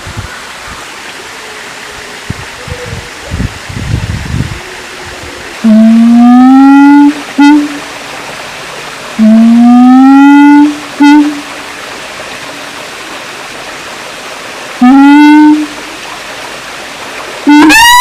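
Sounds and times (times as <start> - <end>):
steady hiss: 0.0 - 9.6
gibbon hooting: 17.5 - 18.0.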